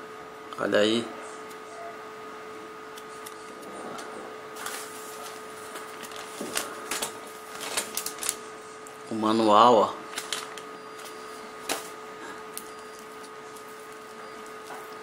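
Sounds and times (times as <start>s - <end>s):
steady hum: 0.0s - 15.0s
paper rustling and crackling: 3.1s - 8.5s, 10.0s - 15.0s.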